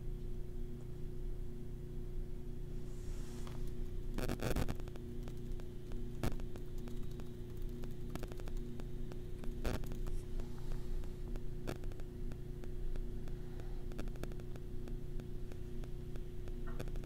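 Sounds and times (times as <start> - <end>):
electrical hum: 0.0 - 17.0
static hiss: 2.7 - 17.0
faint clicks: 3.8 - 17.0.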